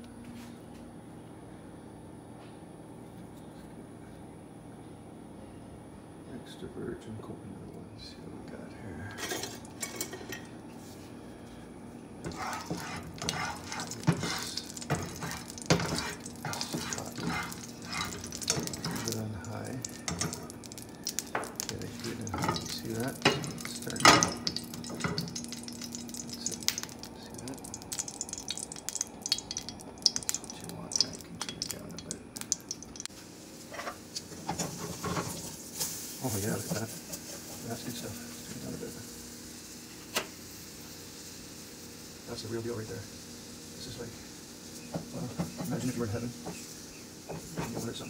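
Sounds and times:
oil crackling in a frying pan: 0:12.2 - 0:48.0
frying pan knocking and clattering: 0:12.3 - 0:19.2, 0:22.3 - 0:25.8.

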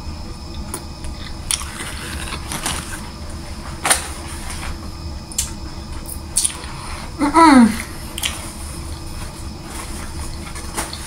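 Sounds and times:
low background hum: 0:00.0 - 0:11.0
person chewing: 0:01.1 - 0:03.0, 0:06.1 - 0:06.8, 0:08.1 - 0:08.5.

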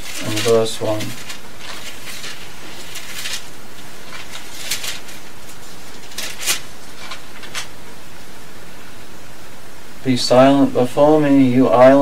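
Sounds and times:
paper pages rustling: 0:00.0 - 0:07.7
steady hiss: 0:00.0 - 0:12.0.

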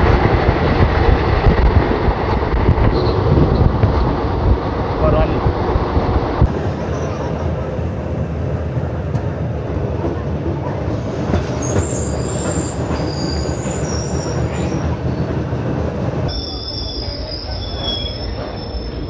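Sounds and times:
train rumbling on rails: 0:00.0 - 0:19.0
high-pitched wheel squeals: 0:11.6 - 0:14.8, 0:16.3 - 0:19.0.

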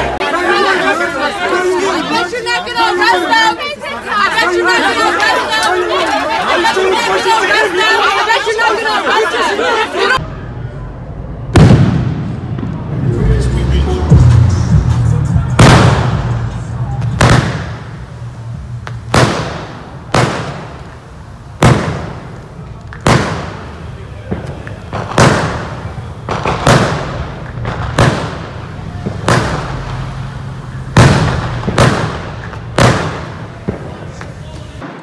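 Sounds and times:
fireworks banging: 0:11.5 - 0:35.0.

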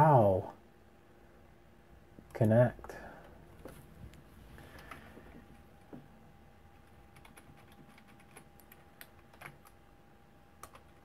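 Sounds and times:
keyboard typing: 0:06.8 - 0:09.8, 0:10.6 - 0:11.0.

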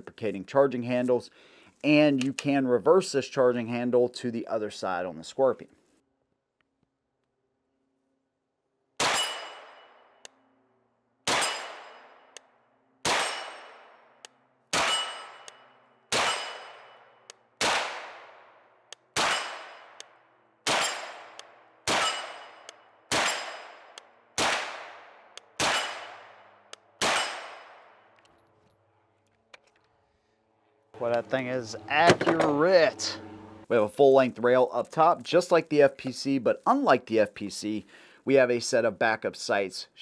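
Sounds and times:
carbine single gunshots echoing: 0:20.6 - 0:28.0.

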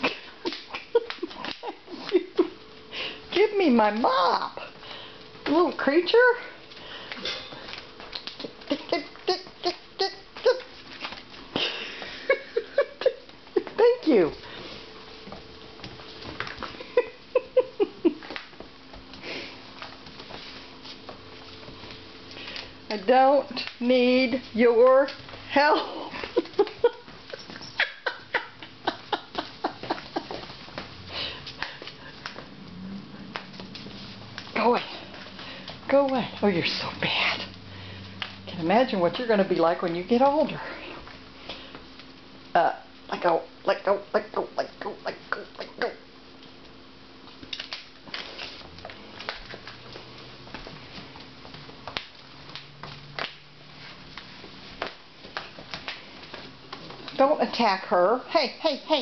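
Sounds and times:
puppy claws scrabbling on tile: 0:06.6 - 0:12.0, 0:46.4 - 0:57.3
puppy claws scrabbling on tiles: 0:06.6 - 0:12.2, 0:13.4 - 0:17.1, 0:29.0 - 0:42.2, 0:46.4 - 0:57.5.

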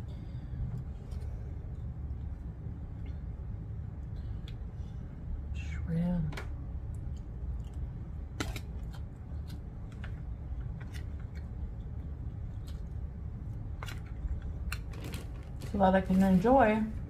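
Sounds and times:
person chewing: 0:06.9 - 0:10.0.

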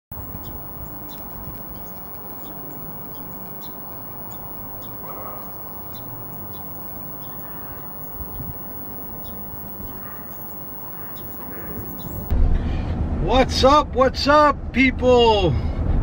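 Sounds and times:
small birds chipping: 0:00.1 - 0:12.3
low rumble of outdoor background: 0:00.1 - 0:13.2.

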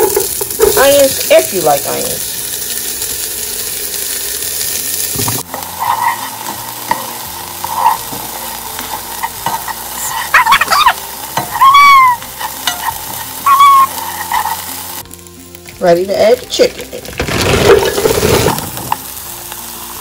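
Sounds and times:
onions sizzling in oil: 0:00.0 - 0:20.0
plastic spoon scraping a pan: 0:05.5 - 0:10.3, 0:12.2 - 0:14.8
spoon squeaking on a pan: 0:05.7 - 0:14.9.

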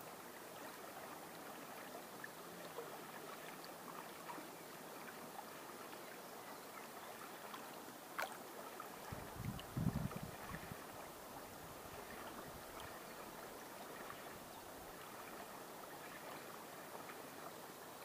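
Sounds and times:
river water flowing and lapping: 0:00.0 - 0:18.0.

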